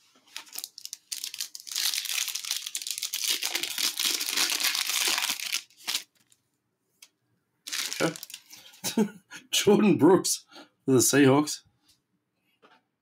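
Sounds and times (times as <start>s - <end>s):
foil wrapper tearing and crinkling: 0.3s - 6.4s, 7.7s - 8.6s.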